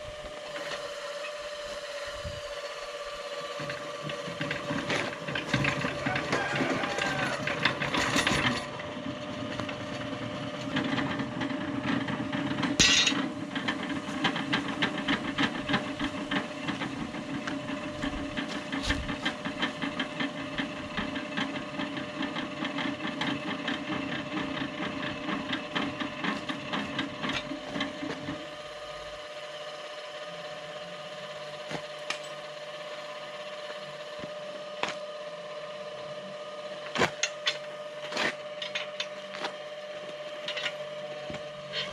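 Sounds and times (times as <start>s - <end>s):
tractor engine rattling: 2.6s - 41.9s
steady electric hum: 12.1s - 19.2s.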